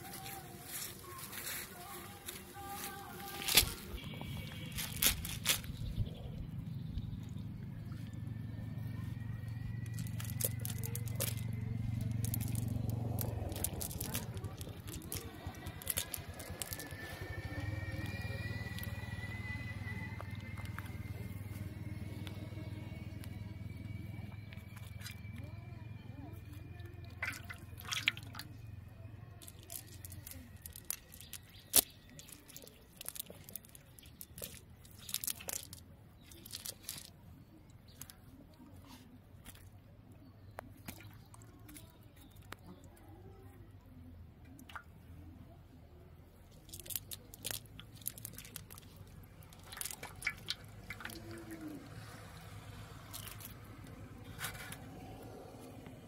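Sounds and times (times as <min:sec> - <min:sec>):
wet net clicks and squishes: 0:03.2 - 0:06.2, 0:09.8 - 0:19.0, 0:24.5 - 0:25.2, 0:27.0 - 0:28.5, 0:29.4 - 0:37.2, 0:37.8 - 0:38.3, 0:38.9 - 0:39.8, 0:40.6 - 0:43.0, 0:44.4 - 0:45.0, 0:46.5 - 0:56.0
water dripping: 0:27.0 - 0:28.5, 0:44.5 - 0:44.9, 0:46.6 - 0:53.6.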